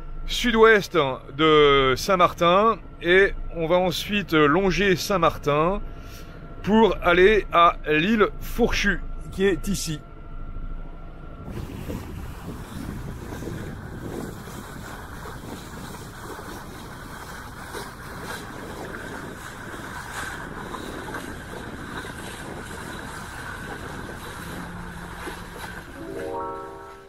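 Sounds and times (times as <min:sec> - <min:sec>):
wind buffeting microphone: 0:11.2 - 0:26.0
water rushing along hull: 0:11.5 - 0:27.0
faint music: 0:24.3 - 0:27.0.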